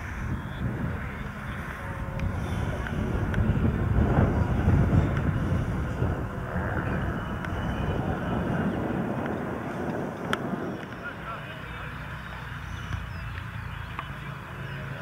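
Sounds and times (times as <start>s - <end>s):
model airplane motor: 0.0s - 11.0s
wind rumble on microphone: 0.0s - 15.0s.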